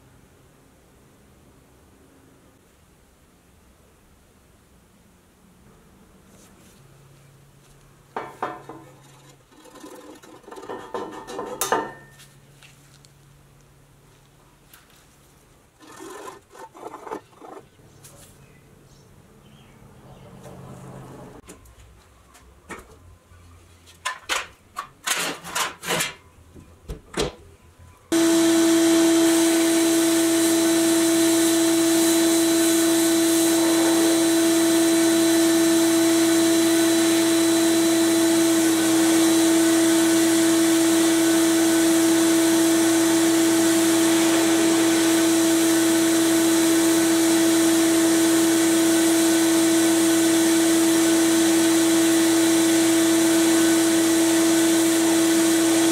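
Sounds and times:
steady motor hum: 28.1 - 55.9
air nozzle blasting hiss: 43.5 - 46.5.

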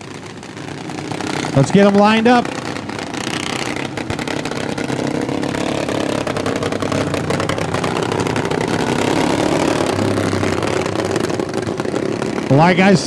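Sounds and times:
lawn mower engines running: 0.0 - 13.0.

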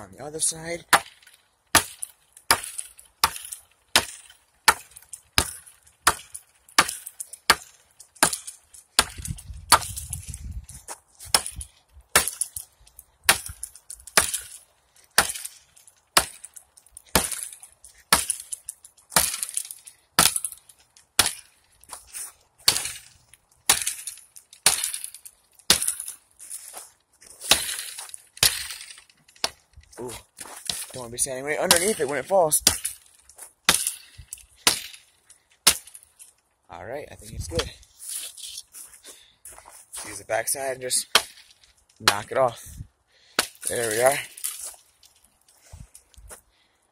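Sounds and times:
axe chopping wood: 0.8 - 10.5, 11.2 - 12.6, 13.2 - 18.6, 19.2 - 25.1, 25.7 - 26.2, 27.4 - 28.8, 29.4 - 31.0, 31.6 - 35.0, 35.6 - 36.0, 40.9 - 42.4, 43.3 - 44.6.

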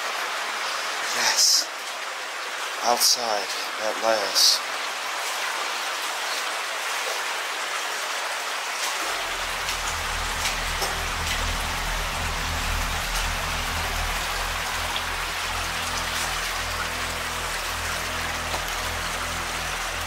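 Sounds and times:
water hissing in tunnel: 0.0 - 3.2, 4.2 - 20.0
faint water splashes: 0.0 - 20.0
low steady hum: 9.0 - 20.0.

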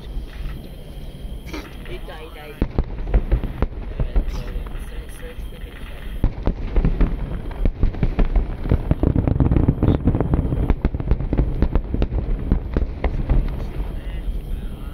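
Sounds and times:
firework shells bursting: 0.0 - 14.8.

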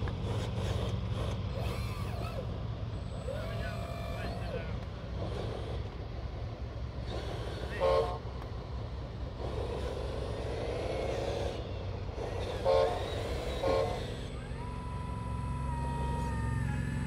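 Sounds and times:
model diesel engine rumble: 0.0 - 17.0
steady whine: 11.6 - 17.0
horn toots: 12.4 - 14.3.

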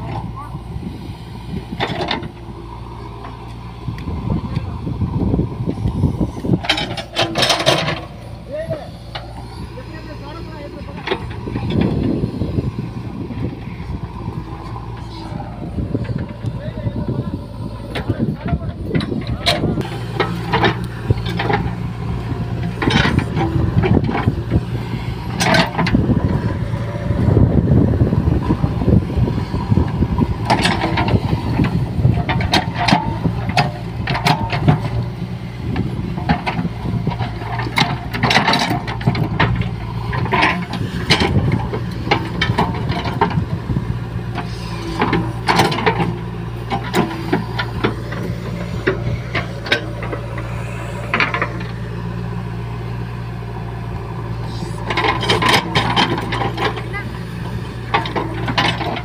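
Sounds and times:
diesel engine under hydraulic load: 0.0 - 59.0.

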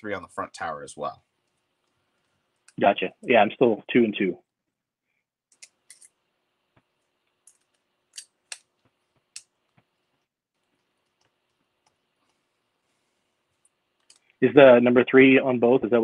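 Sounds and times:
faint clicks of small parts handled: 1.4 - 2.8, 5.5 - 12.5, 13.5 - 14.4.

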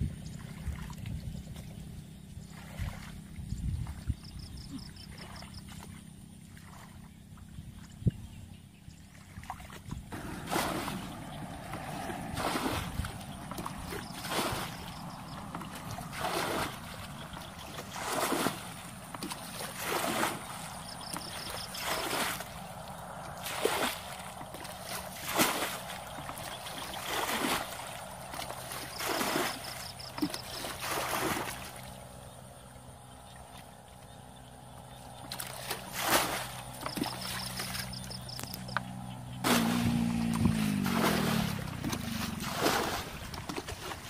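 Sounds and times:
bucket scooping water: 9.1 - 32.4, 33.0 - 44.0
water splashing: 9.1 - 44.0.

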